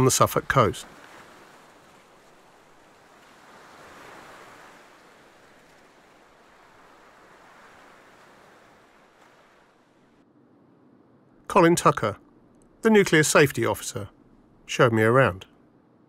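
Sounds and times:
distant sea surf: 0.0 - 16.0
wind: 0.0 - 16.0.

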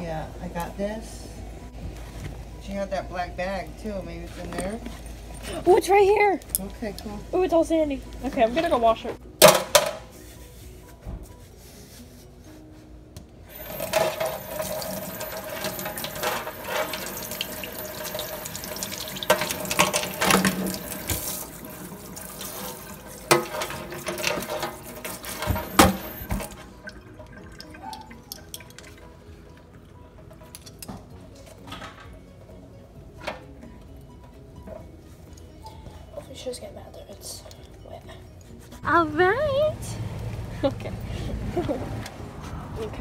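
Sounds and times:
water splashing into sink: 13.8 - 28.9.

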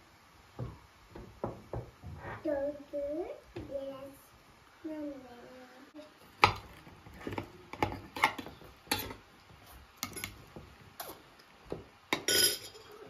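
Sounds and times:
tongs clinking on plates: 10.0 - 10.4, 12.1 - 13.0.

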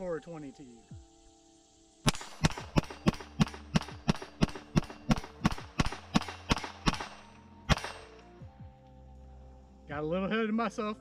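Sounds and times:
pistol shots: 2.1 - 8.3.

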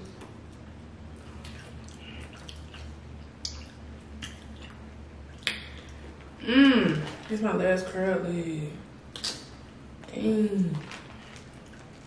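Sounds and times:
wet squishing of seafood: 1.1 - 6.3, 6.9 - 7.4, 10.7 - 12.0
plastic bags rustling: 6.8 - 7.9, 10.6 - 12.0.

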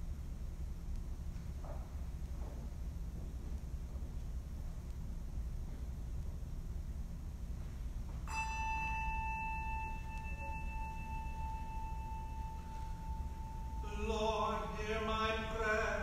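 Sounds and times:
struck bell ringing: 8.3 - 15.6
person chanting: 13.8 - 16.0.

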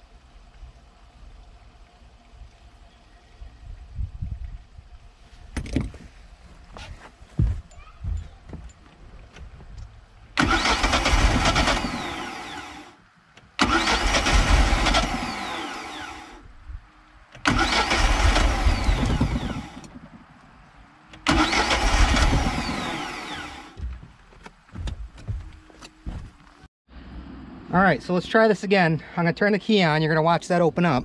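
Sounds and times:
boat engine starter cranking: 10.4 - 12.8, 13.6 - 16.4, 17.4 - 20.0, 21.1 - 23.8.

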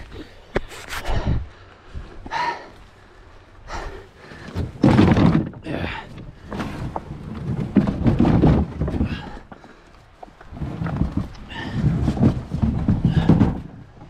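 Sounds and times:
kayak hull scraping on rocks: 4.2 - 14.0.

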